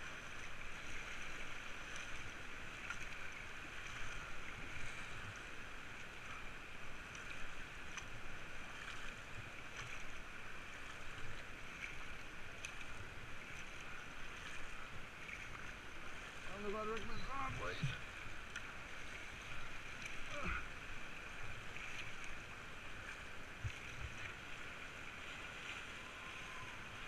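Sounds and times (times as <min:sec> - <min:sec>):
paddle splashes and drips: 0:00.0 - 0:27.0
whitewater rushing: 0:10.2 - 0:27.0.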